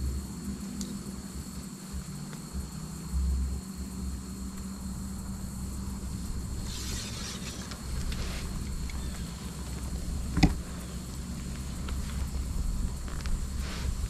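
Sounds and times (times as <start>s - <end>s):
insects chirring: 0.0s - 14.0s
low rumble: 0.0s - 14.0s
short rustle: 6.6s - 14.0s.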